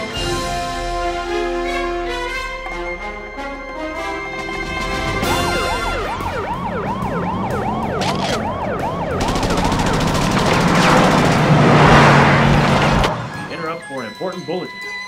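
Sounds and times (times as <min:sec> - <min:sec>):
police sirens wailing: 0:02.6 - 0:15.0
sharp cracks: 0:08.0 - 0:13.2
rapid gunshots: 0:09.2 - 0:13.0.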